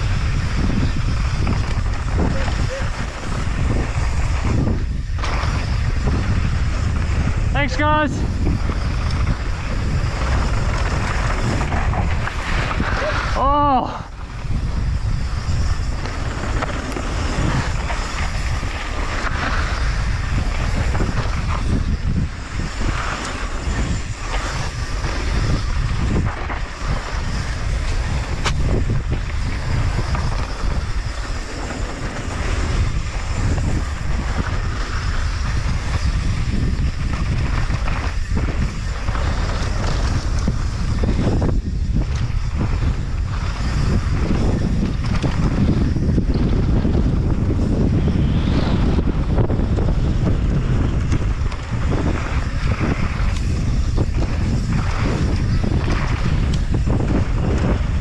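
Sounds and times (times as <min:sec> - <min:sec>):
bike rattling over bumps: 0:00.0 - 0:58.0
tyres rolling on loose dirt: 0:00.0 - 0:58.0
wind buffeting microphone: 0:00.0 - 0:58.0.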